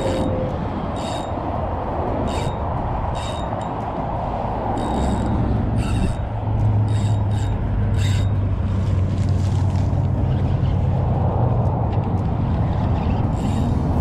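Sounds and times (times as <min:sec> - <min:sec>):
low engine hum: 0:00.0 - 0:14.0
fishing reel handling noises: 0:04.8 - 0:06.2, 0:06.8 - 0:08.3.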